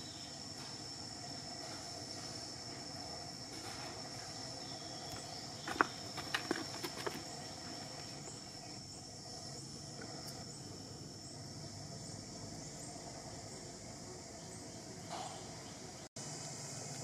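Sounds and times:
insects trilling: 0.0 - 17.0.

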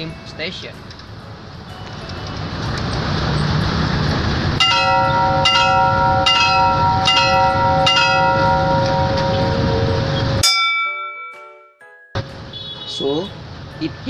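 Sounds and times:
road traffic rumble: 0.0 - 11.1, 12.2 - 14.0
railway crossing bell clanging: 1.6 - 11.6.

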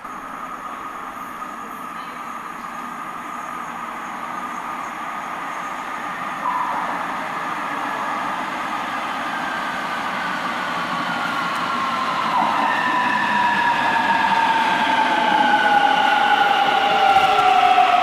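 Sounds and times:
electric train whining: 0.0 - 18.0.

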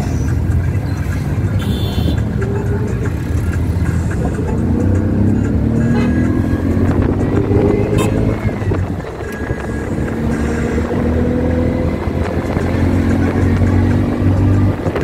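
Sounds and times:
road noise: 0.0 - 15.0
vehicle engine running: 0.0 - 15.0.

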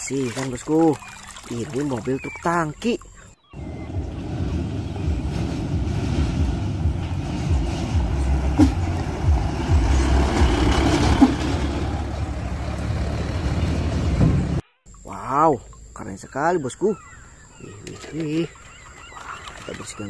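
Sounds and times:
heavy truck engine rumble: 3.6 - 14.6.

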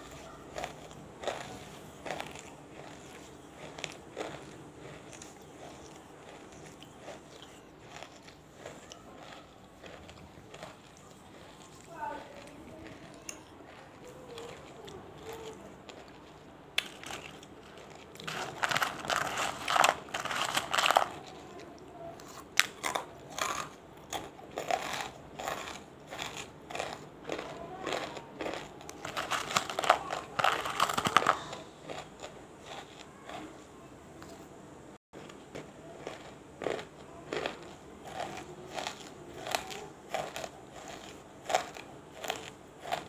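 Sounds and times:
crunchy pieces being chewed: 0.0 - 34.4, 35.2 - 43.0.

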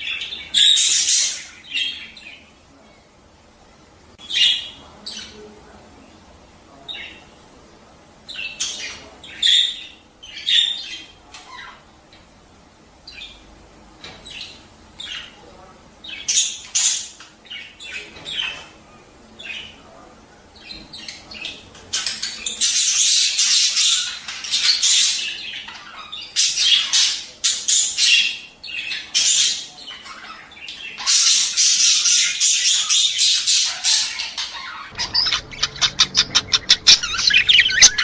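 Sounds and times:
budgerigars chattering: 0.0 - 2.5, 8.3 - 11.9, 16.0 - 18.8, 20.6 - 38.0.

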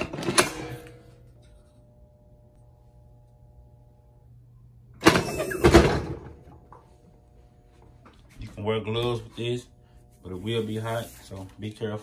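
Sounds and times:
faint low hum: 0.4 - 5.0.

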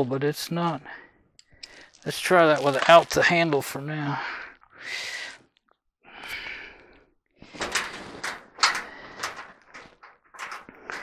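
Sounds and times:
breathy exhalations: 0.9 - 2.1, 4.1 - 10.0
clicks and scrapes on sheet metal: 7.6 - 11.0.

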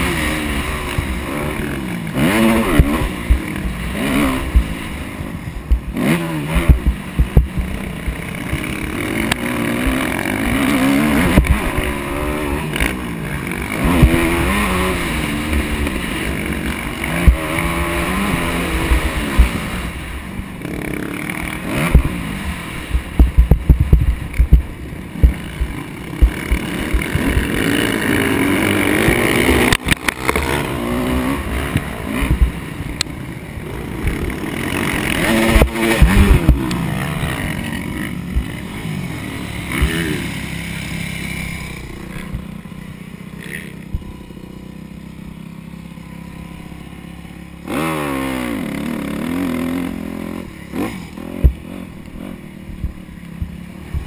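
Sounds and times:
dirt bike engine revving: 0.0 - 54.0
thumps and rumble on microphone: 5.6 - 6.0, 6.6 - 8.6, 21.9 - 22.2, 22.9 - 27.6, 31.7 - 32.6, 52.7 - 54.0.

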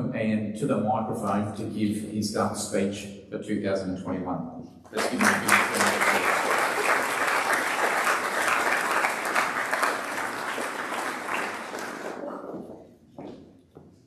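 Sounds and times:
audience applauding: 5.0 - 12.7.

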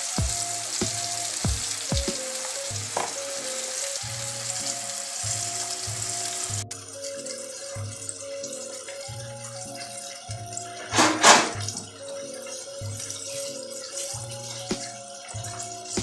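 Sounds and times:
fish sizzling in hot oil: 0.0 - 9.2.

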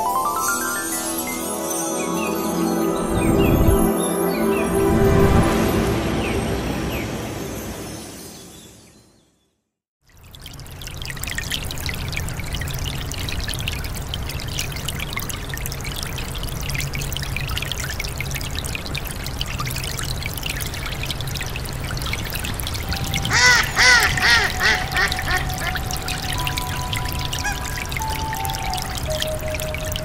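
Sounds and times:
brook running over rocks: 10.0 - 30.0
duck quacking: 23.3 - 25.8.

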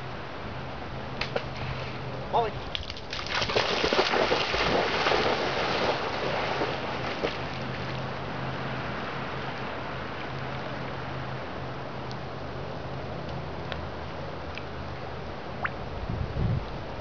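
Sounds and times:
gentle water: 0.0 - 17.0
dog splashing through water: 2.7 - 8.1
wind noise on microphone: 15.6 - 17.0.

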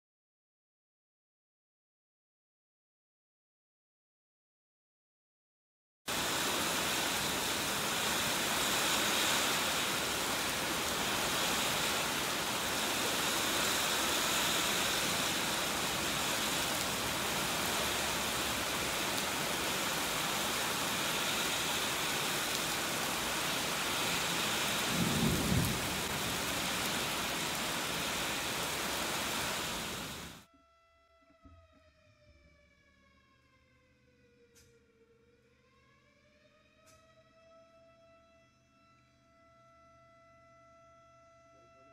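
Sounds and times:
heavy rain on pavement: 6.1 - 30.5
low rumble of thunder: 24.6 - 27.8.

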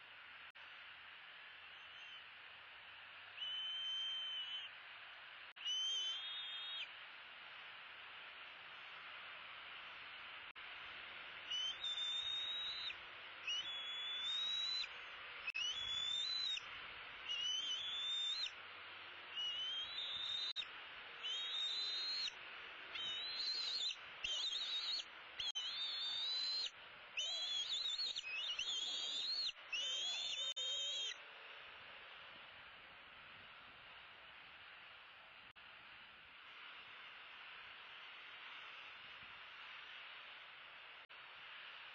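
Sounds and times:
background hiss: 0.0 - 41.9
eagle whining calls: 3.4 - 4.7, 5.6 - 6.9, 11.5 - 14.9, 15.5 - 16.6, 17.3 - 18.5, 19.4 - 20.6, 21.2 - 31.2.

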